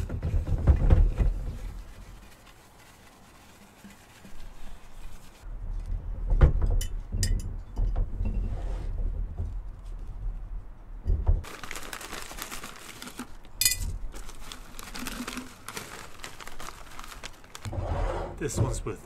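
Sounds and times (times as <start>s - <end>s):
paper towel rubbing inside glass: 0.0s - 5.4s.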